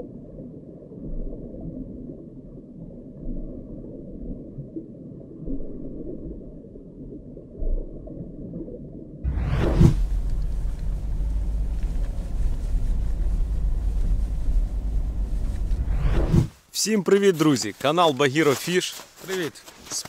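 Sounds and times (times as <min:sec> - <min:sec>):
underwater rumble and gurgle: 0:00.0 - 0:16.3
car driving: 0:09.3 - 0:16.5
whoosh: 0:09.3 - 0:16.6.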